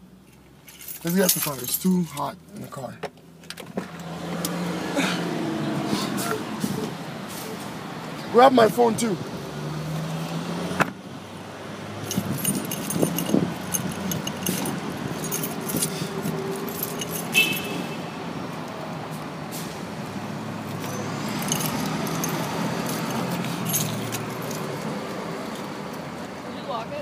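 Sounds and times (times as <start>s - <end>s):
low hum of vehicles: 0.0s - 27.0s
keys jangling: 0.6s - 2.3s, 12.0s - 17.8s, 20.8s - 24.8s.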